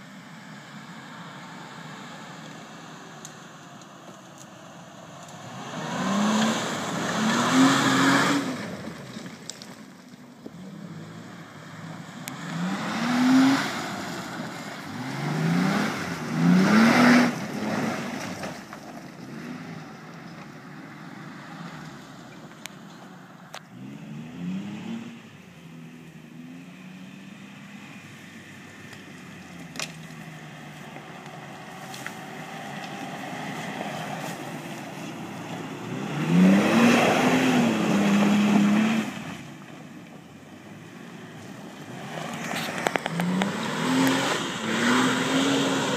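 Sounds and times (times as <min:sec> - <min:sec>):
car engine revving: 0:05.2 - 0:09.7, 0:10.5 - 0:39.7, 0:40.7 - 0:45.9.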